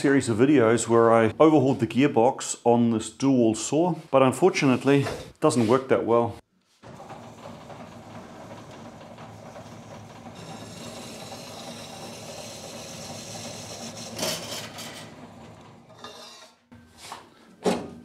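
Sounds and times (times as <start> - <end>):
bandsaw cutting metal: 9.8 - 16.6.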